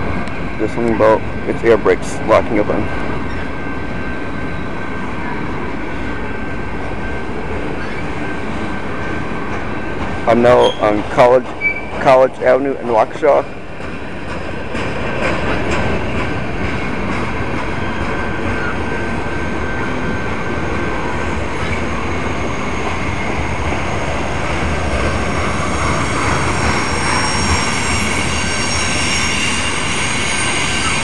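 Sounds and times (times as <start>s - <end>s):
freight train cars rumbling on rails: 0.0s - 31.0s
high wheel squealing: 7.0s - 12.3s, 14.9s - 31.0s
train wheels clicking: 13.1s - 31.0s.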